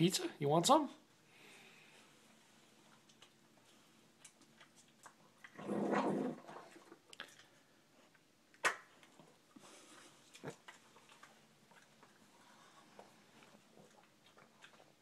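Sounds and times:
small clicks of dog eating: 2.9s - 5.6s, 7.1s - 15.0s.

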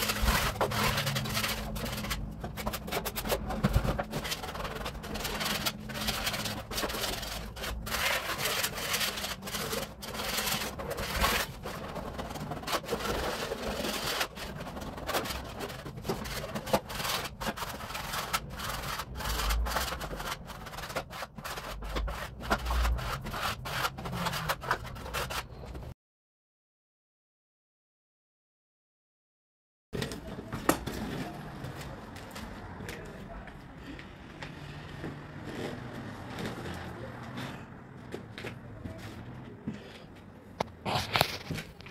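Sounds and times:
wallpaper scraped off wall: 0.0s - 25.9s.

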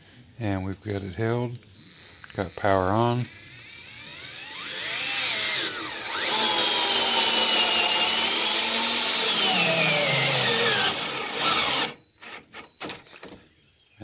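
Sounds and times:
cordless screwdriver whining: 3.4s - 12.5s.

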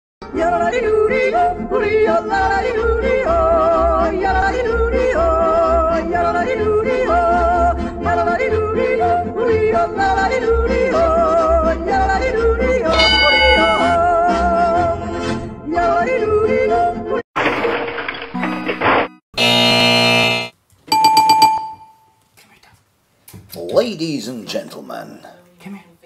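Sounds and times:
yodeling song: 0.3s - 15.1s.

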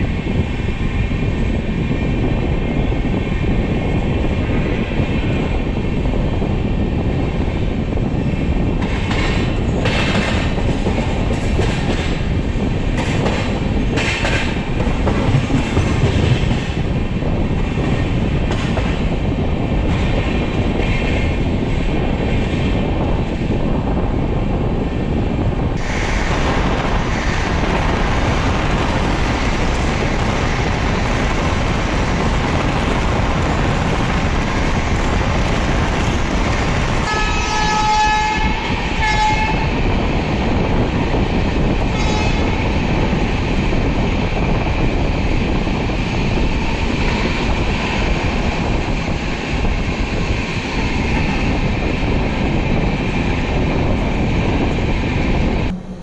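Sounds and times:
rumble of train wheels on track: 0.0s - 56.0s
locomotive horn blasts: 37.0s - 39.7s, 41.9s - 42.5s.

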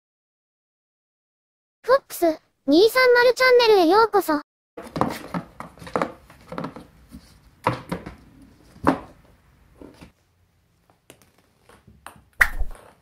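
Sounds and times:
cats bumping cardboard box: 4.8s - 6.9s.

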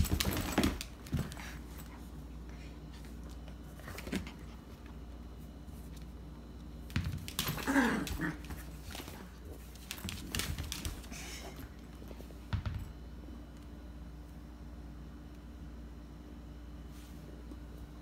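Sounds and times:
puppy paws on hard floor: 0.0s - 6.2s, 6.8s - 13.0s.

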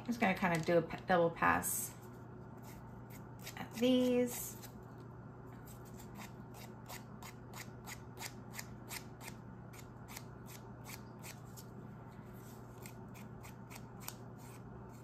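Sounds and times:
nail file rasping on resin: 2.6s - 4.8s, 5.7s - 11.5s, 12.8s - 15.0s.

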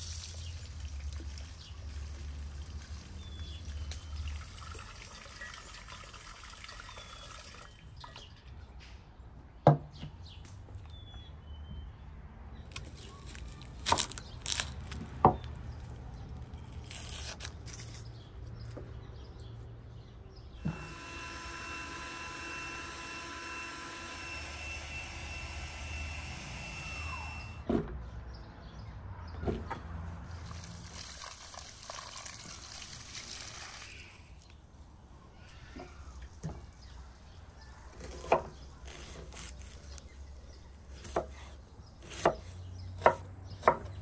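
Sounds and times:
water pouring and splashing: 0.0s - 8.5s, 30.3s - 34.5s.

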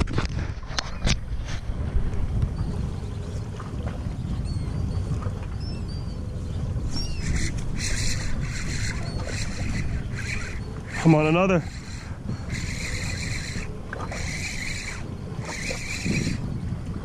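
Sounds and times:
low rumble of wind and water: 0.0s - 17.0s
birds chirping and crying: 6.8s - 16.5s.

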